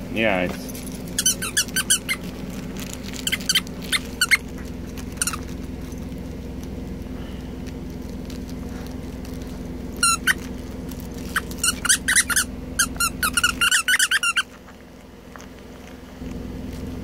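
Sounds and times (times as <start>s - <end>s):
steady low hum: 0.0s - 17.0s
dog toy squeaking: 1.1s - 2.3s, 3.1s - 4.5s, 5.2s - 5.5s, 10.0s - 10.5s, 11.2s - 14.6s.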